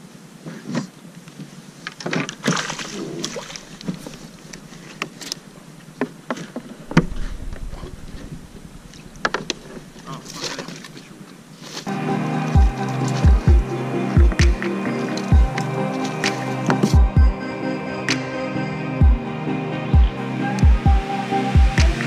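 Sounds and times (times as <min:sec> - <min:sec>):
low rumble: 0:06.8 - 0:11.2.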